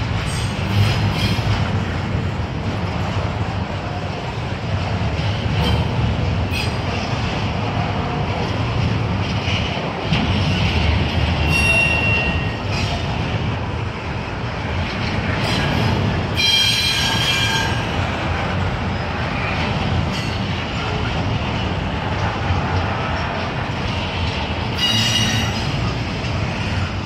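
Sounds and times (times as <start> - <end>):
train wheels rumbling on rails: 0.0 - 27.0
high wheel squeal: 11.4 - 13.0, 16.4 - 18.0, 24.7 - 25.7.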